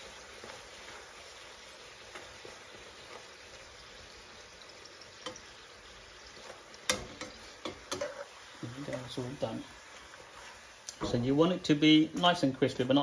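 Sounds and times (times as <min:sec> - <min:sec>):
dough frying in oil: 0:00.0 - 0:13.0
metal utensils clicking on pan: 0:05.2 - 0:05.4, 0:06.8 - 0:09.2.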